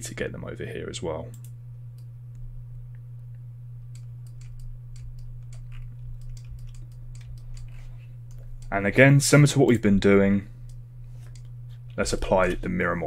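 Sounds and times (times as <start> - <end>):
steady low hum: 0.0 - 13.0
keyboard and mouse clicks: 3.9 - 8.8, 10.7 - 11.5.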